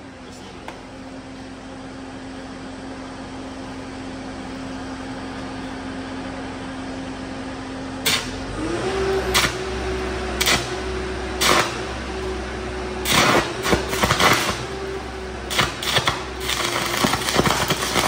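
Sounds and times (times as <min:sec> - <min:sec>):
welder engine humming: 0:00.0 - 0:18.0
welding arc crackling and popping: 0:08.0 - 0:08.4, 0:09.3 - 0:09.8, 0:10.4 - 0:12.4, 0:13.0 - 0:18.0.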